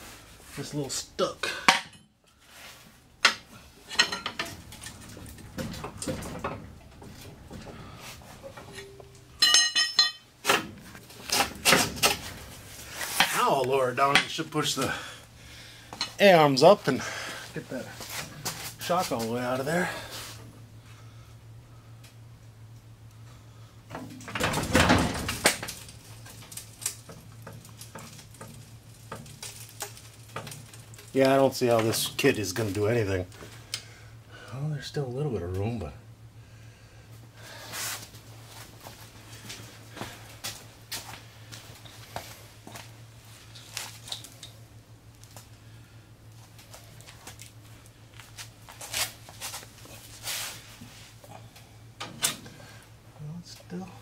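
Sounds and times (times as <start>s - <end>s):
steady low hum: 0.0s - 54.0s
tools clattering on concrete: 1.6s - 2.2s, 3.2s - 7.6s, 8.5s - 10.3s
truck suspension settling: 3.3s - 13.4s.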